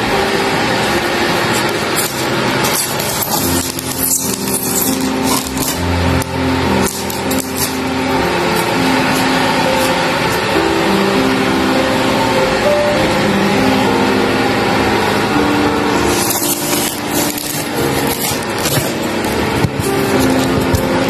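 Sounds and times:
background music: 0.0s - 21.0s
knife scraping styrofoam: 1.4s - 10.4s, 16.0s - 21.0s.

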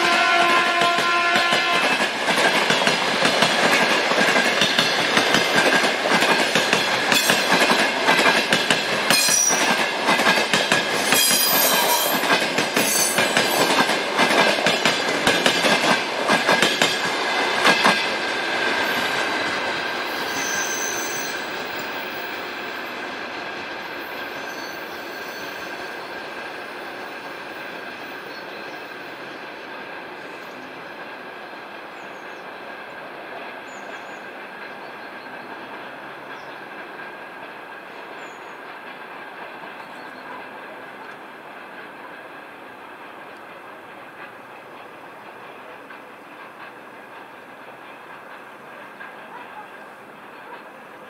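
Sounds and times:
train wheels clattering over rail joints: 0.1s - 20.4s, 35.5s - 50.7s
high squeal from running gear: 11.0s - 12.2s, 20.0s - 22.3s, 24.2s - 26.0s
sharp whistles: 20.1s - 21.5s.

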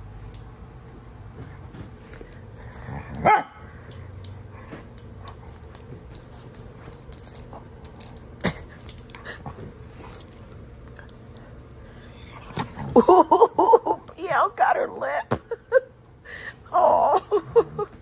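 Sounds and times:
dog barking: 3.2s - 3.6s
dog yipping: 12.0s - 12.6s.

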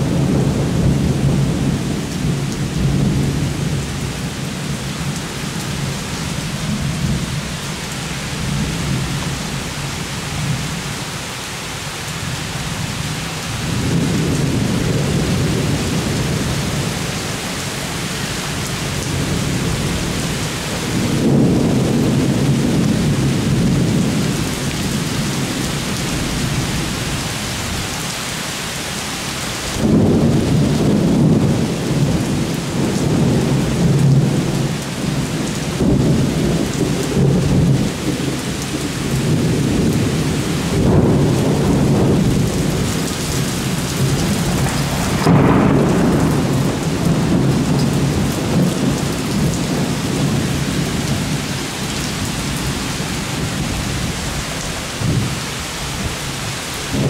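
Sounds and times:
thunder rumbling: 0.0s - 7.6s, 13.5s - 27.9s, 29.7s - 55.4s
heavy rain falling: 0.0s - 57.0s
thunder clap: 21.0s - 24.2s, 29.8s - 35.1s, 40.7s - 51.4s.

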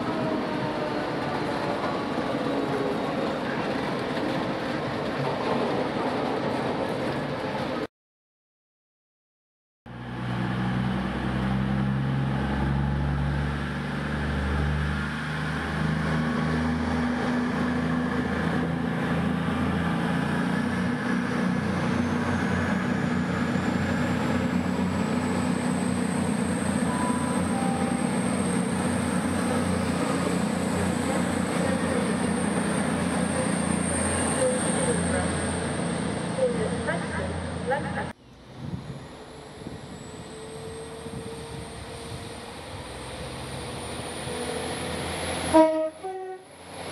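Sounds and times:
diesel train engines running: 9.9s - 46.9s.

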